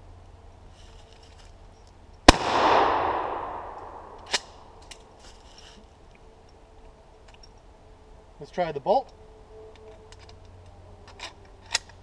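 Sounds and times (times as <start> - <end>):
faint gun handling clicks: 1.1 - 5.4, 9.8 - 12.0
sharp gun clack: 2.3 - 4.8
shotgun blast echo: 2.3 - 4.8.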